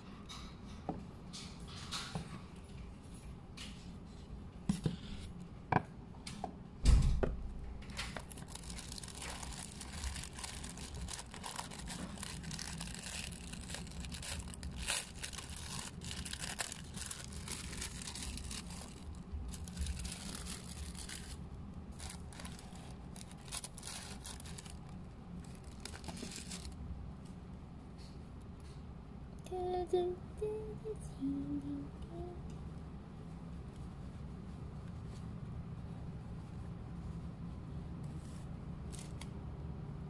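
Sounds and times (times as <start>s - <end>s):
tissue paper rustling: 8.2s - 26.8s.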